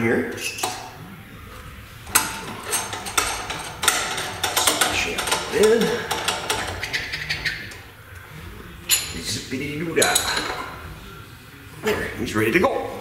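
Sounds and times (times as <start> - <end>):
metal clinking and rattling: 2.0 - 7.9, 10.0 - 10.8.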